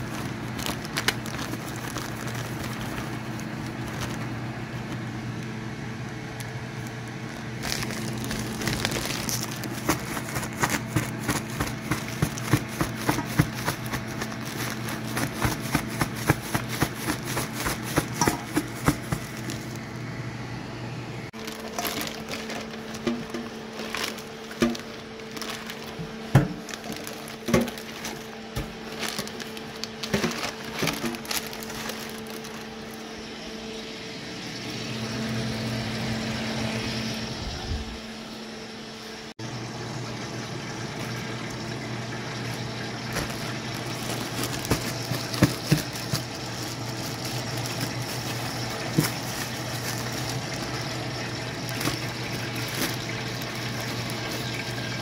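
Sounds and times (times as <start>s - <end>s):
plastic bag crinkling: 0.0s - 5.2s, 6.8s - 19.9s, 21.4s - 33.2s, 42.4s - 55.0s
steady hum: 0.0s - 55.0s.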